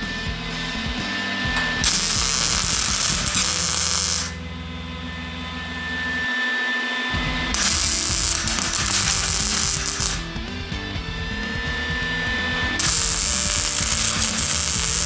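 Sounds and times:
welding arc crackling and hissing: 0:01.8 - 0:04.4, 0:07.5 - 0:10.3, 0:12.8 - 0:15.0.

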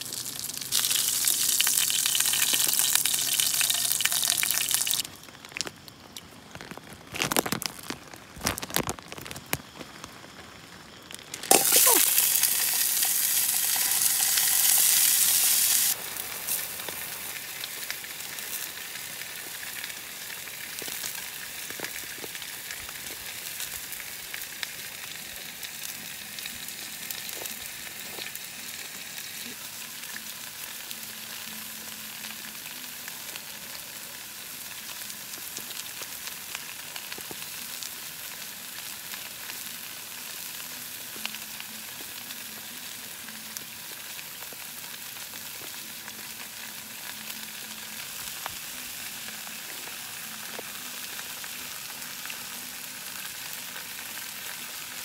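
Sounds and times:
fat popping and crackling: 0:00.0 - 0:16.0
meat sizzling in a frying pan: 0:00.0 - 0:55.0.

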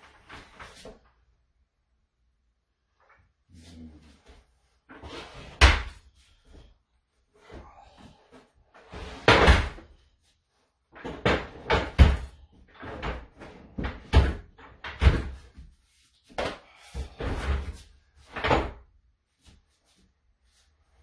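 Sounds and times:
wooden cabinets knocking and thudding: 0:08.9 - 0:09.8, 0:11.0 - 0:15.7, 0:16.4 - 0:18.8.

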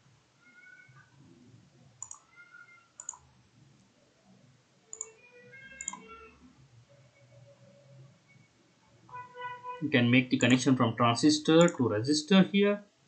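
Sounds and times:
computer mouse clicks: 0:02.0 - 0:02.4, 0:03.0 - 0:03.3, 0:04.9 - 0:05.2, 0:05.8 - 0:06.1.

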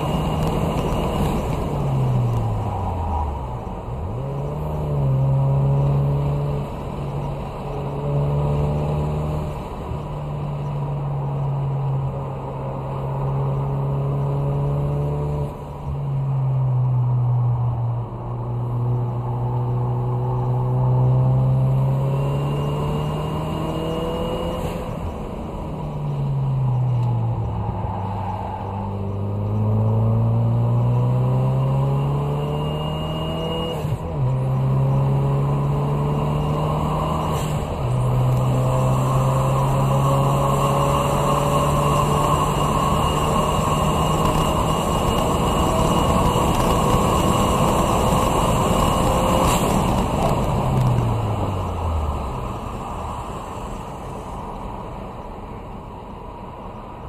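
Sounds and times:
car engine pulling hard: 0:19.0 - 0:54.8.

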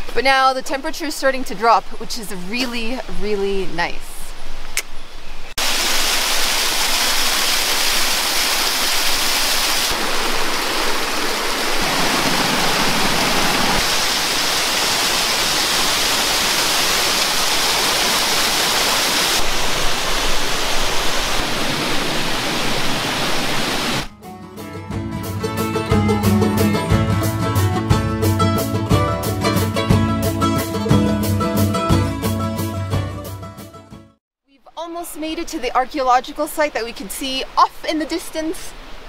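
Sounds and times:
stream cascading over rocks: 0:05.6 - 0:24.1
waterfall rushing: 0:05.6 - 0:24.1
plucked-string music: 0:24.1 - 0:34.2.

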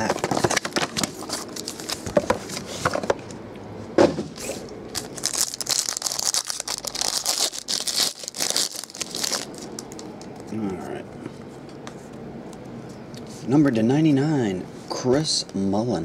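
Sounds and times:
foil pack crinkling and tearing: 0:04.9 - 0:10.4.

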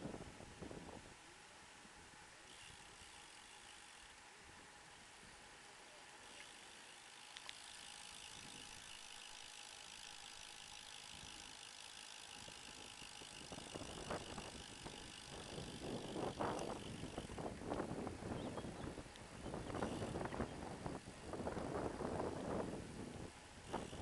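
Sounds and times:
bicycle tyres whirring on asphalt: 0:00.0 - 0:24.0
bicycle click: 0:02.4 - 0:04.3, 0:06.2 - 0:17.9, 0:18.6 - 0:20.5, 0:23.6 - 0:24.0
wind buffeting microphone: 0:12.4 - 0:24.0.

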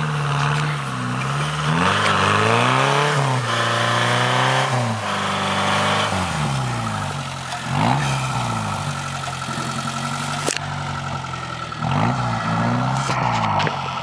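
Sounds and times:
car engine revving under load: 0:00.0 - 0:14.0.

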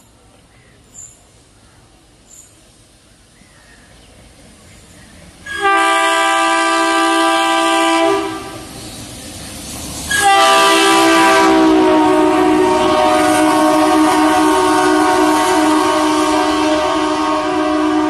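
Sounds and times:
locomotive horn blasts: 0:05.5 - 0:08.7, 0:10.1 - 0:18.0.

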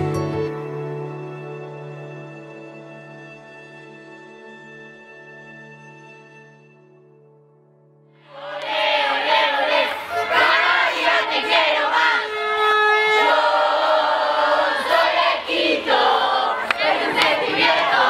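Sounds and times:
music track: 0:00.0 - 0:15.3
crowd singing and chanting: 0:08.2 - 0:18.0.

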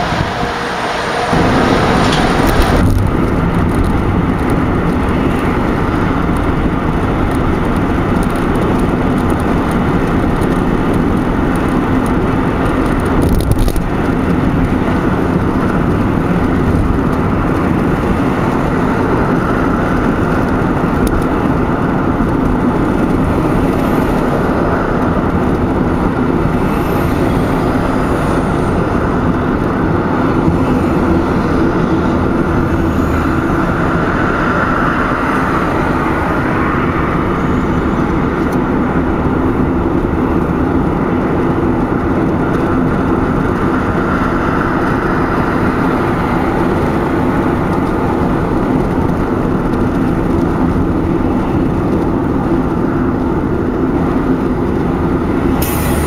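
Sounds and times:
car road and engine noise: 0:00.0 - 0:56.0.

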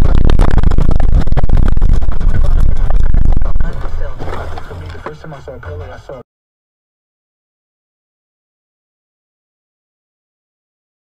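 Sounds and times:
car rumbling over rough ground: 0:00.0 - 0:05.3.

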